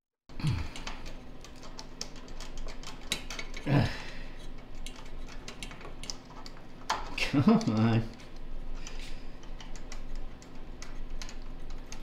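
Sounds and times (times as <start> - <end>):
low grunt: 3.6 - 4.2.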